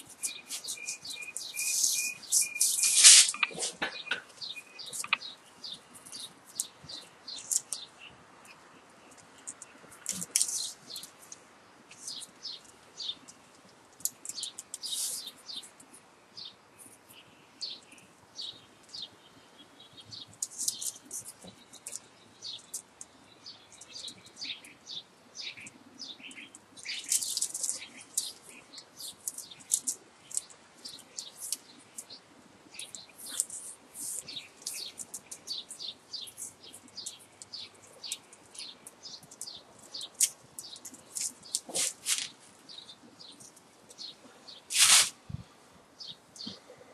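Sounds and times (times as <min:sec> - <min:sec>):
wire squeaking and scraping: 0:00.0 - 0:05.2, 0:40.0 - 0:42.4, 0:44.7 - 0:45.2.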